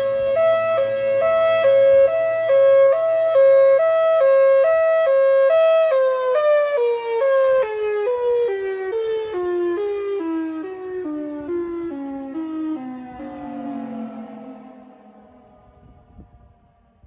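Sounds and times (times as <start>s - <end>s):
two-tone warning siren: 0.0s - 17.0s
low drone: 12.7s - 17.0s.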